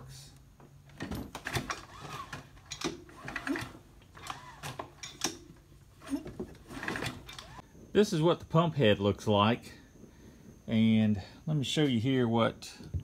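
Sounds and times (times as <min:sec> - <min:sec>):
engine turning over: 0:01.3 - 0:05.4, 0:06.0 - 0:07.6
starter cord rasping: 0:01.4 - 0:05.3, 0:06.0 - 0:07.6.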